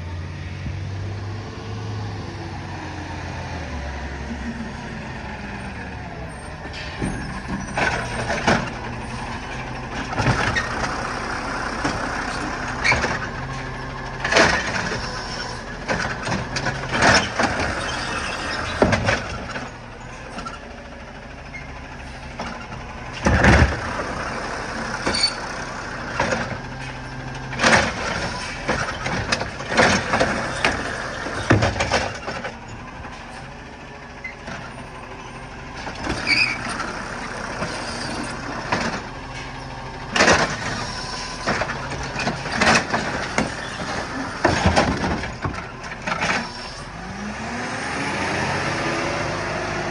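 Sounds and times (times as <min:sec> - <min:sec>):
diesel engine running: 0:00.0 - 0:49.9
clanks of metal and plastic: 0:26.1 - 0:32.6, 0:40.1 - 0:46.5.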